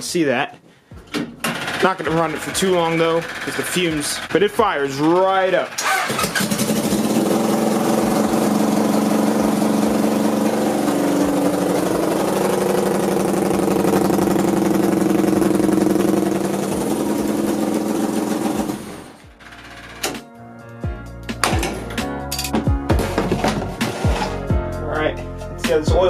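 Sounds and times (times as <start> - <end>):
motorcycle engine idling: 5.7 - 19.0.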